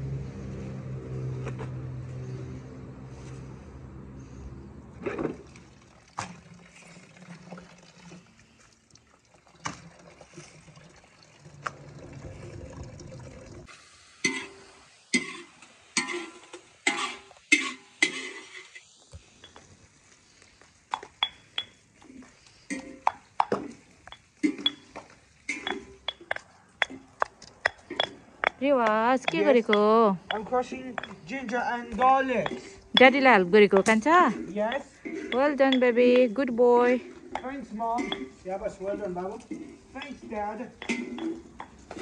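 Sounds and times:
tap water running and splashing: 5.2 - 14.4
pestle pounding in stone mortar: 25.6 - 31.3, 31.9 - 34.1.

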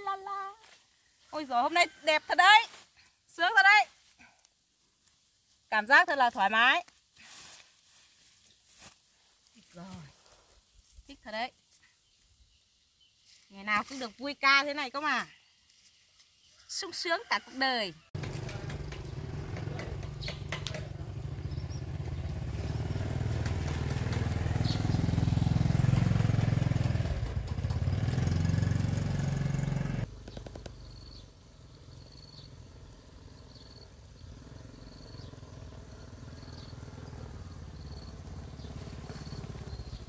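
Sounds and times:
distant motorbike approaching: 18.2 - 40.0
motorbike engine running: 18.2 - 40.0.

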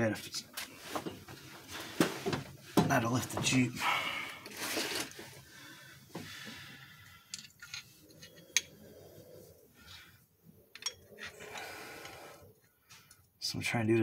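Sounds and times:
metallic clicks of steel parts: 7.0 - 8.8, 10.7 - 12.2.

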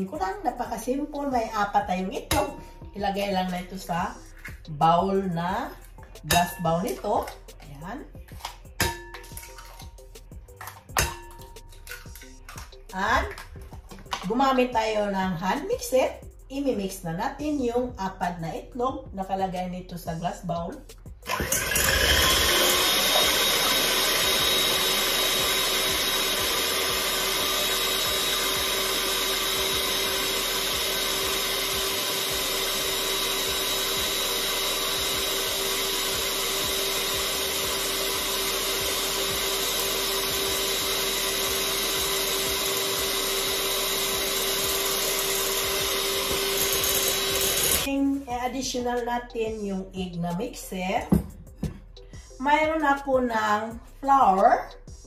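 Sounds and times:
electric hand mixer whisking: 21.2 - 48.0.

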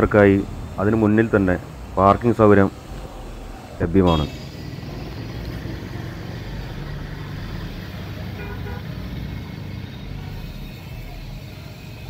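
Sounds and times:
low rumble of motor vehicles: 0.0 - 12.0
short horn toot: 4.1 - 4.5, 8.4 - 8.9.

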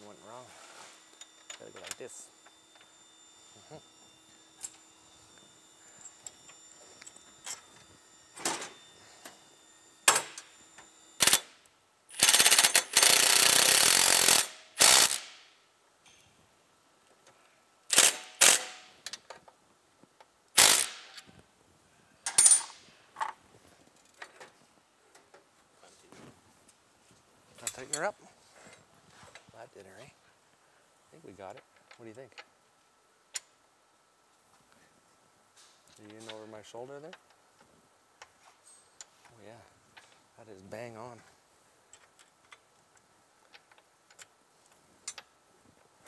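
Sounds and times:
cordless impact driver hammering: 12.2 - 15.4, 20.6 - 21.2.

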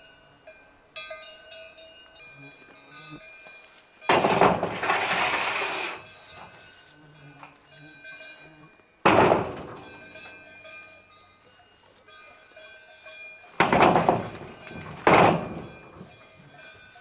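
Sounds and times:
stones thunking on metal roofing: 4.1 - 5.9, 9.0 - 10.1, 13.5 - 16.1.

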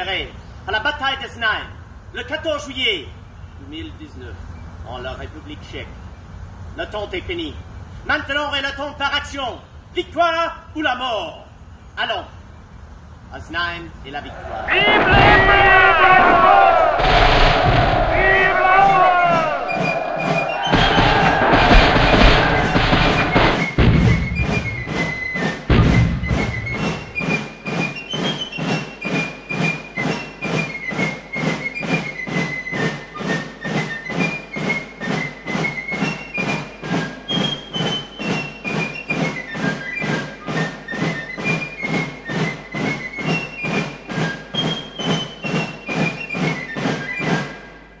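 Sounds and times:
heavy low thumps: 14.3 - 27.2
background music with beat: 14.8 - 27.5.

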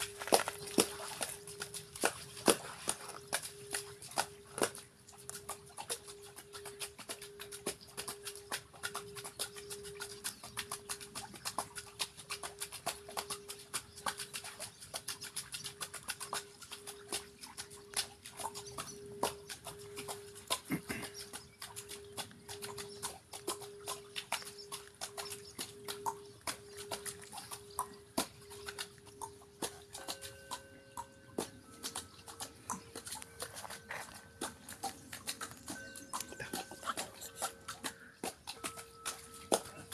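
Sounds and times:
water splashes and drips: 0.0 - 39.9
singing bowl ringing tone: 21.9 - 39.9.

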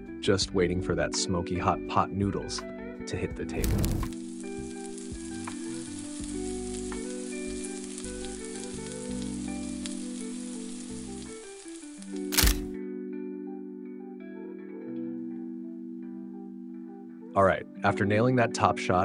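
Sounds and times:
soft background music: 0.0 - 19.0
noodles sizzling and crackling: 3.6 - 12.8.

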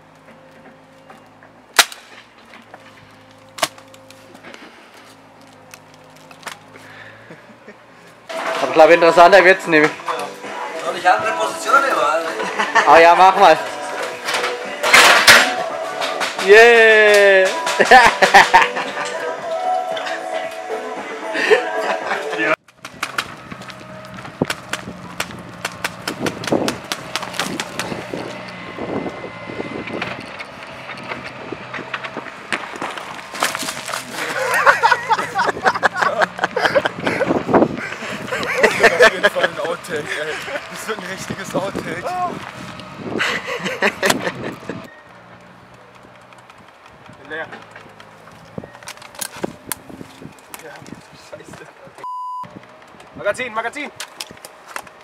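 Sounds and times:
boots crunching on gravel: 23.0 - 28.5, 30.8 - 35.4.

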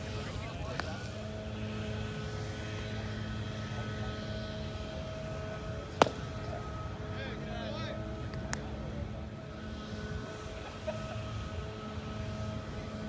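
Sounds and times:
steady background drone: 0.0 - 13.0
baseball sharp crack: 0.6 - 1.2, 5.8 - 6.7, 8.2 - 8.8.

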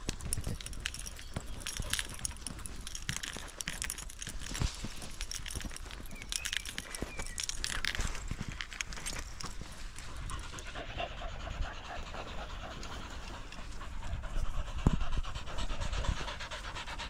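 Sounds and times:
footsteps through long grass: 0.2 - 10.8.

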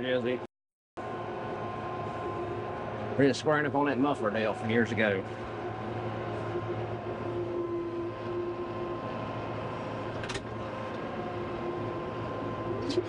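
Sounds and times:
tractor diesel engine drone: 1.0 - 13.0.

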